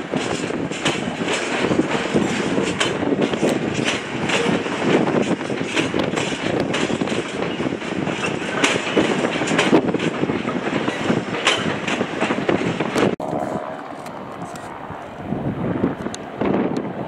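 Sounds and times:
wheels clicking over rail joints: 0.0 - 13.2
train rumbling: 0.0 - 17.0.

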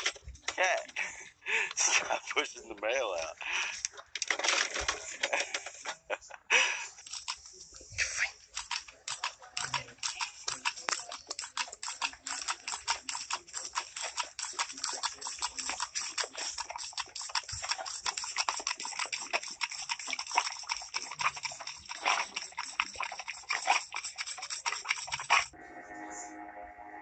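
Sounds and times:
voices: 0.0 - 3.9, 4.8 - 13.6
water jet splashing on dog's face: 8.6 - 25.5.

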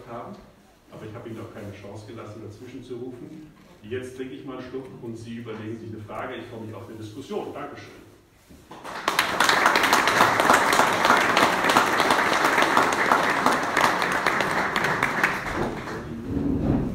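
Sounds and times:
audience clapping: 8.7 - 16.2.

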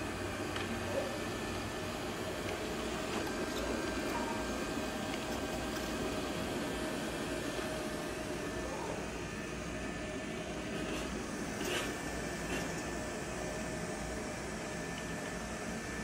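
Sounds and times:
robot vacuum motor hum: 0.0 - 16.0.

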